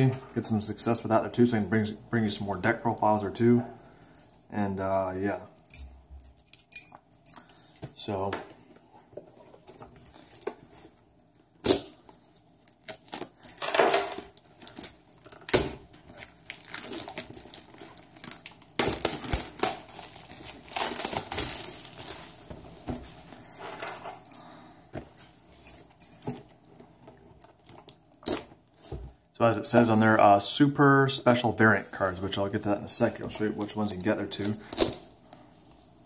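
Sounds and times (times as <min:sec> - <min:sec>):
packaging rustling and crinkling: 0:14.2 - 0:23.3.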